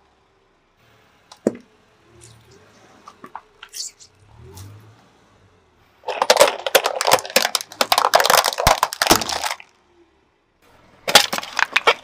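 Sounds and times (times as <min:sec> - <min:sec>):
plastic toys cracking under tyre: 0:06.0 - 0:09.8, 0:11.0 - 0:12.0.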